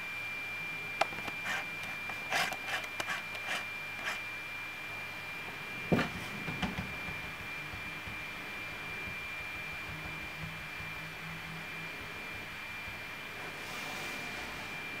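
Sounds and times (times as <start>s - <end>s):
rubbing and clicking handling noises: 1.0s - 4.2s.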